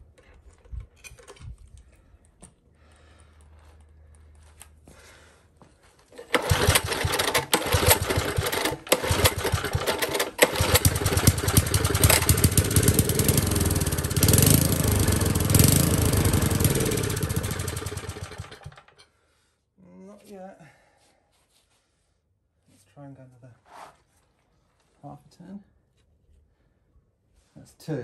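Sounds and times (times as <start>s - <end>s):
small engine pull-started: 6.1s - 19.0s
small engine running unevenly: 6.2s - 19.0s.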